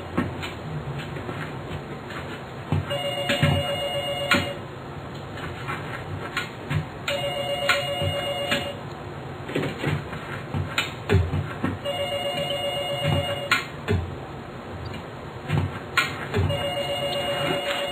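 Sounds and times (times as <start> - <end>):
telephone ringing: 2.9 - 4.6, 7.1 - 8.8, 11.8 - 13.6, 16.5 - 17.9
ball kicked and tapped: 9.6 - 11.8.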